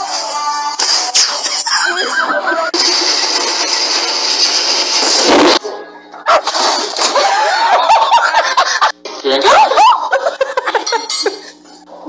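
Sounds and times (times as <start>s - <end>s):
people laughing: 1.7s - 2.8s, 7.0s - 11.5s.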